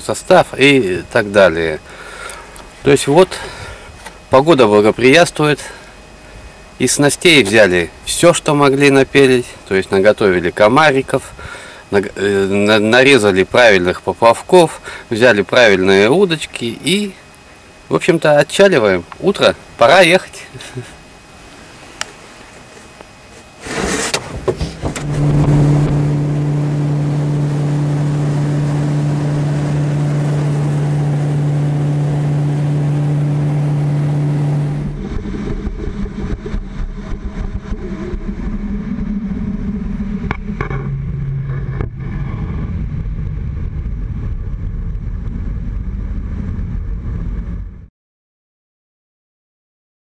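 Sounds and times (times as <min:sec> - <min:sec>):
outboard motor running: 0:00.0 - 0:17.1, 0:22.2 - 0:43.9.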